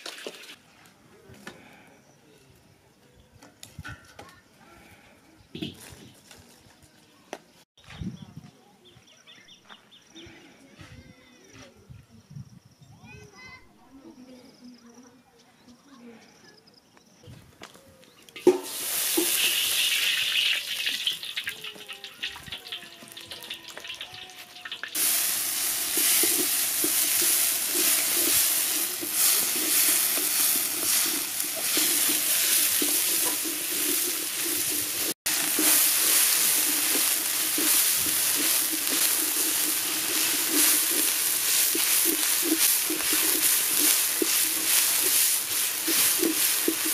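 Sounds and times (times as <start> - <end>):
onions sizzling in hot oil: 0.0 - 0.6, 18.4 - 46.9
wooden spoon stirring in wok: 18.4 - 24.0, 24.6 - 46.9.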